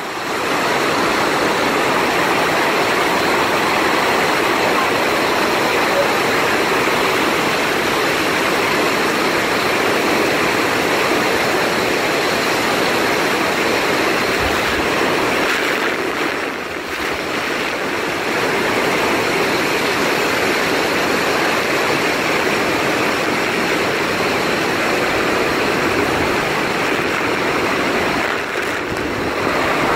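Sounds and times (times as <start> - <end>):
waterfall rushing: 0.0 - 29.9.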